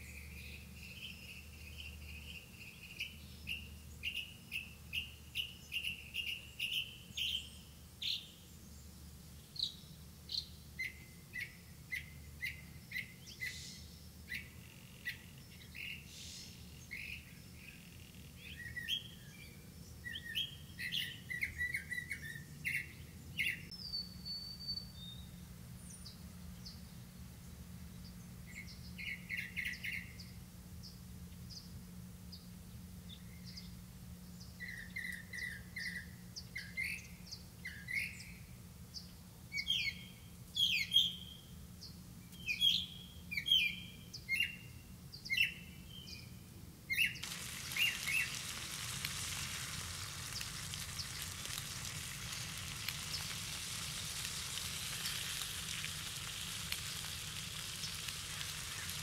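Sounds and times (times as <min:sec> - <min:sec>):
small birds chirping: 0:00.0 - 0:32.5, 0:33.1 - 0:59.0
food sizzling in a covered pan: 0:47.2 - 0:59.0.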